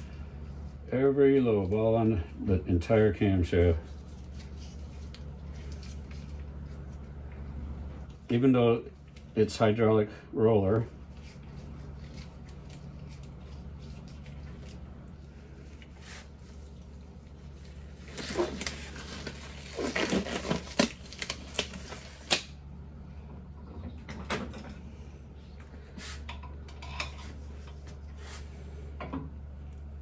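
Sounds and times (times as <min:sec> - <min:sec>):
steady low hum: 0:00.0 - 0:30.0
glove stretching rustles and snaps: 0:17.5 - 0:22.6.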